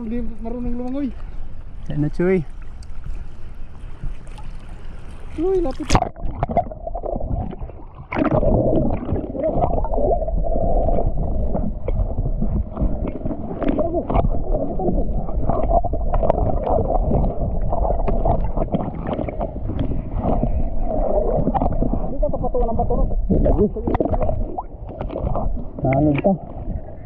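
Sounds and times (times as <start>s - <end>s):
muffled water sloshing: 0.0s - 27.0s
faint ticks: 2.7s - 3.0s.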